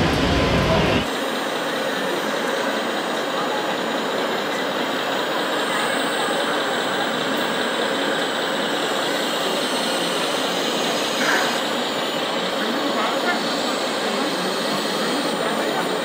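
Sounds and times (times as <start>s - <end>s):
model machine engines running: 0.0s - 16.0s.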